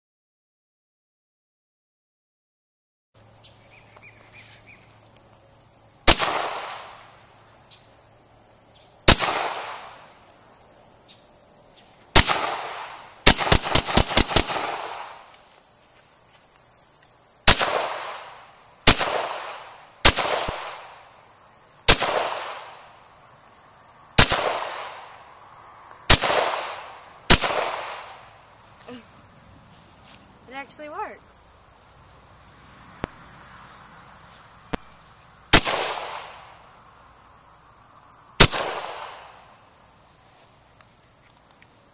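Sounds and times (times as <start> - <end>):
pistol shots echoing: 12.2 - 15.2, 17.5 - 20.9, 21.9 - 22.8, 24.2 - 25.1, 26.1 - 28.2, 35.5 - 36.4, 38.4 - 39.3.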